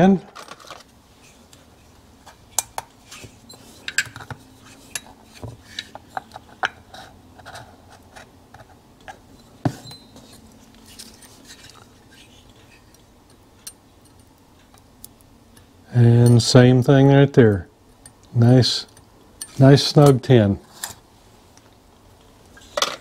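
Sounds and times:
light metallic clicks and clinks: 12.8 - 16.4.

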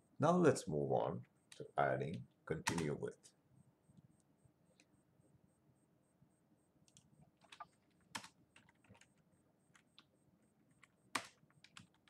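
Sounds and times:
typing on computer keyboard: 2.7 - 3.0, 6.8 - 10.1, 10.7 - 12.0.

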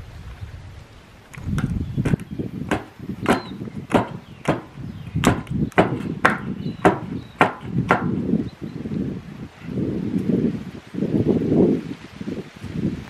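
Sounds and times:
hand tool chopping ground: 1.4 - 8.2.

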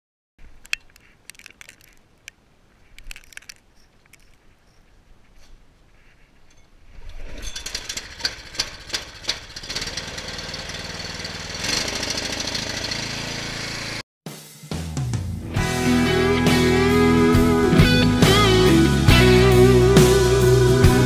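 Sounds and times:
handling clicks and knocks: 0.5 - 4.9
snowblower engine running: 7.6 - 14.0.

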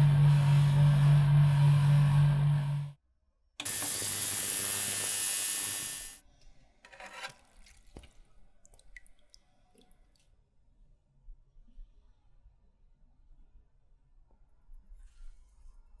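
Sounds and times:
ultrasonic cleaner hissing: 3.7 - 6.2
faint drips and ticks: 7.9 - 10.4.

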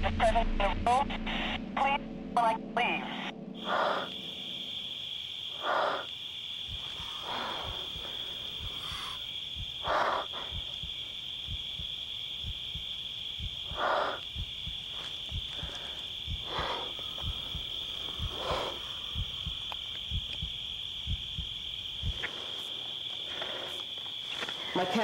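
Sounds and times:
high-pitched electronic whine: 0.0 - 5.2
soft low thumps: 6.6 - 22.3
breathy exhalations: 6.7 - 10.8, 14.9 - 19.8, 22.1 - 24.7.

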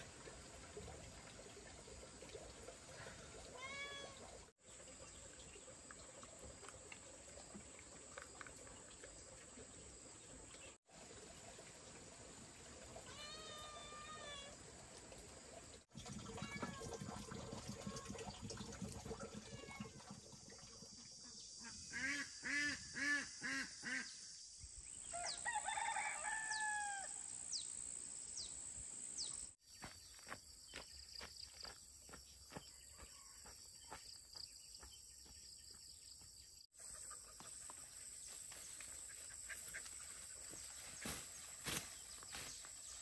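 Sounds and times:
outdoor background hiss: 21.4 - 29.6
rooster crowing: 25.1 - 27.2.

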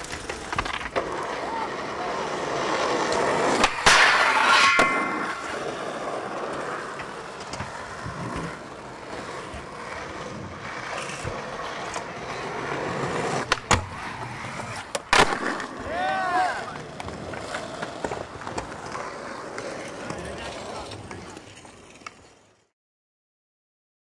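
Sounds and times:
skateboard clack: 0.0 - 22.7
skateboard wheels rolling on asphalt: 0.0 - 22.7
skateboard grinding on metal bar: 2.2 - 16.4.

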